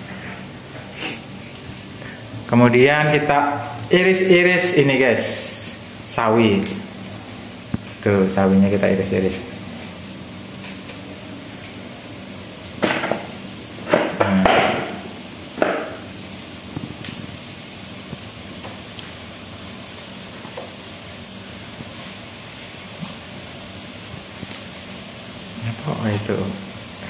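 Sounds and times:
steady low hiss: 0.0 - 27.0
knife chopping on cutting board: 13.9 - 15.0, 15.6 - 16.0.

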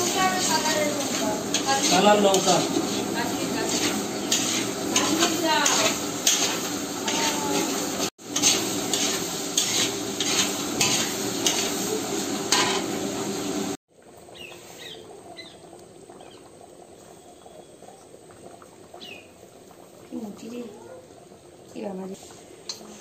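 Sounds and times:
metal ladle scraping pan: 0.0 - 11.8, 12.5 - 12.9
curry simmering: 0.0 - 23.0
spices frying and sizzling: 0.0 - 23.0.

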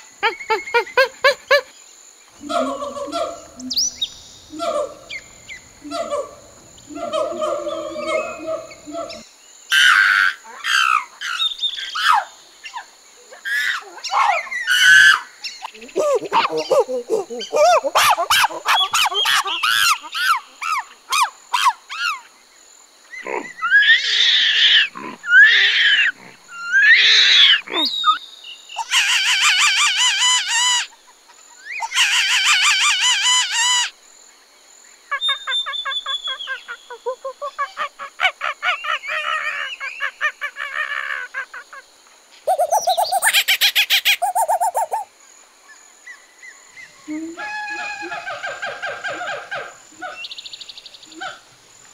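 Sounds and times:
monkeys chattering fast: 0.2 - 1.7, 2.4 - 3.9, 4.5 - 5.2, 5.8 - 11.0, 13.5 - 22.2, 28.8 - 30.9, 31.8 - 33.9, 42.5 - 45.1
monkeys screeching and chirping: 2.4 - 11.4, 13.4 - 22.3, 23.1 - 28.2, 28.8 - 30.9, 31.6 - 33.9, 42.5 - 45.1.

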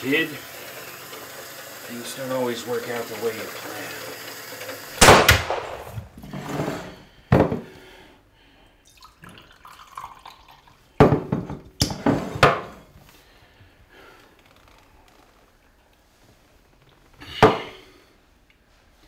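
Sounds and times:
water splashing in a sink: 8.8 - 11.1.

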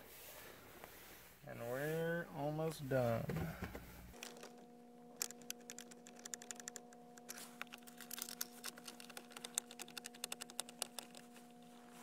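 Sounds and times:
faint steady hum: 0.0 - 12.0
screwdriver clicking: 5.2 - 11.2.

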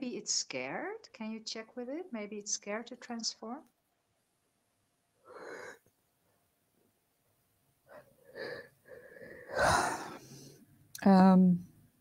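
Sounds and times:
person breathing: 5.2 - 5.9, 7.8 - 10.7.

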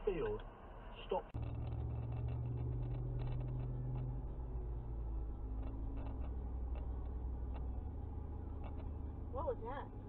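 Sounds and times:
car road and engine rumble: 0.0 - 10.0.

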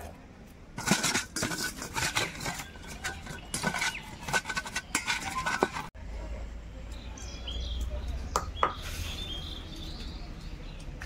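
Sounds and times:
eggs knocking and rubbing in a bowl: 0.7 - 6.0.

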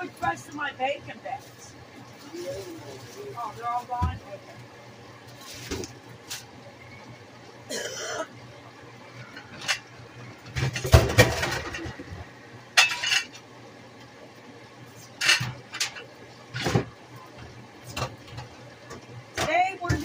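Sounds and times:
dishes and utensils clattering: 10.6 - 12.1, 12.8 - 13.4, 15.2 - 16.9.

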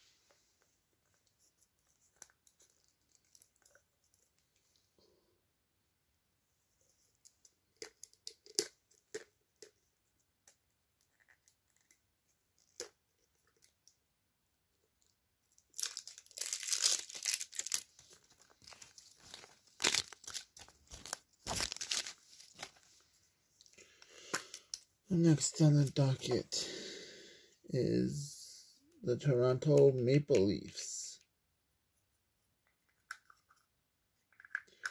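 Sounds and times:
packaging clicks and crinkles: 15.6 - 22.8
wrapper crinkling and tearing: 15.6 - 22.9.

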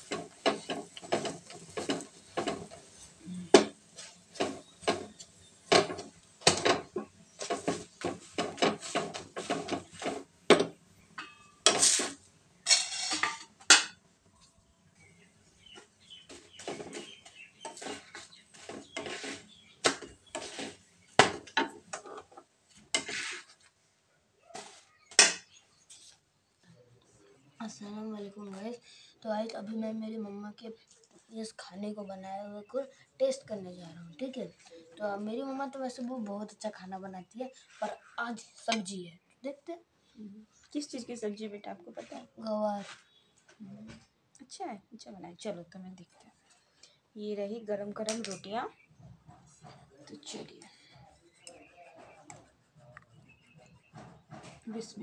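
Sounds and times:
metal griddle knocking on stove grate: 0.0 - 2.9, 3.5 - 12.0.

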